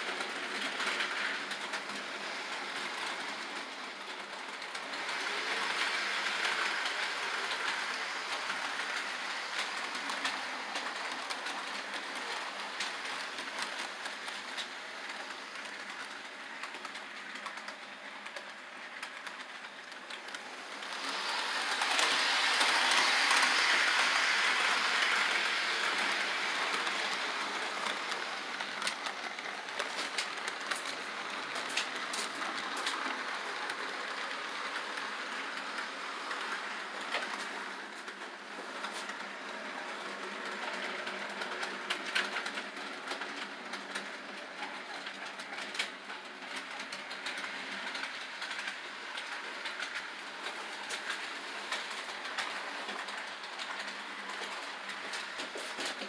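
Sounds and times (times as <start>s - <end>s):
model train whirring: 0.0s - 56.0s
clicking over rail joints: 6.7s - 33.8s.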